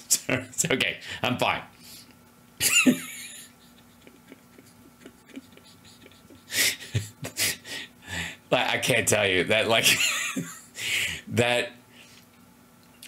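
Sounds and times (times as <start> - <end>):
man's stifled laughter: 2.6 - 7.7, 9.9 - 10.8.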